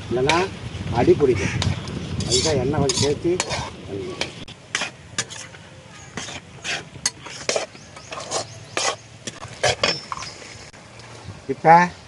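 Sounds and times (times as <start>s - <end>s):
food sizzling in oil: 0.0s - 10.4s
steel ladle scraping a pan: 2.1s - 10.4s.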